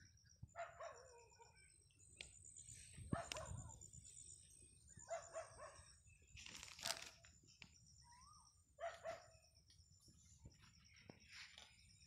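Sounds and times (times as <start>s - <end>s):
faint dog barking: 0.6s - 1.6s, 3.1s - 3.7s, 8.8s - 9.4s.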